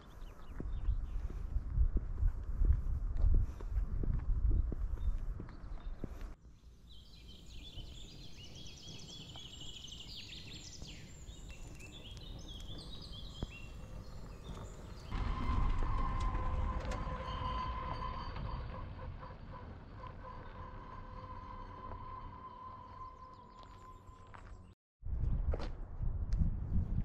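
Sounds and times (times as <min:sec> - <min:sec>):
songbirds singing: 0:00.0 - 0:01.4, 0:05.0 - 0:15.2
faint outdoor background: 0:00.0 - 0:27.0.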